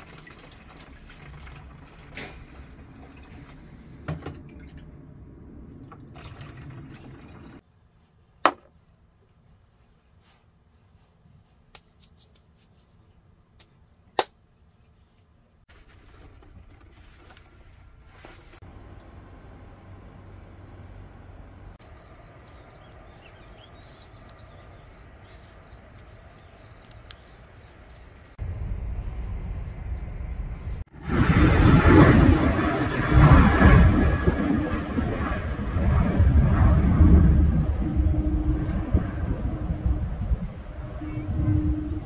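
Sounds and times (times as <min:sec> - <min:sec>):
low rumbling noise: 0:02.4 - 0:06.0, 0:17.3 - 0:42.0
faint bird chirps: 0:20.2 - 0:30.8.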